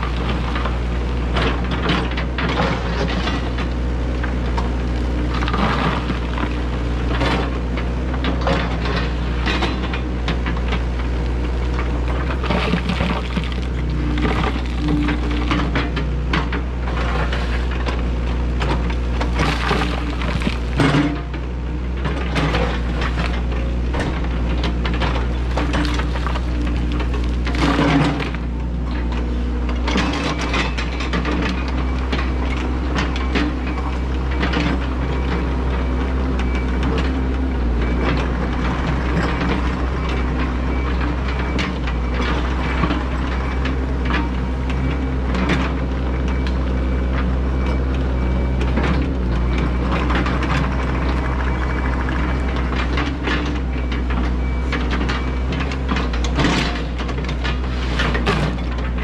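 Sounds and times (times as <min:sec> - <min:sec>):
excavator diesel engine under load: 0:00.0 - 0:59.0
bucket digging dirt and stones: 0:11.9 - 0:21.3, 0:22.2 - 0:28.6.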